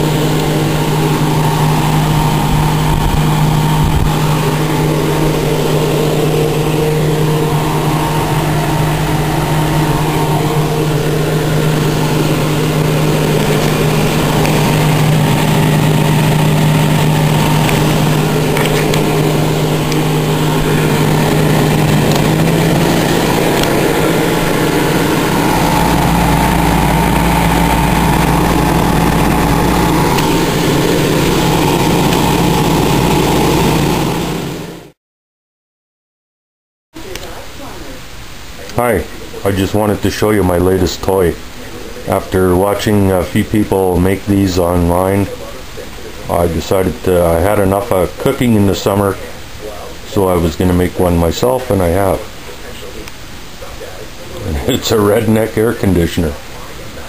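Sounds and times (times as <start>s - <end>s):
small fan motor hum: 0.0s - 34.9s.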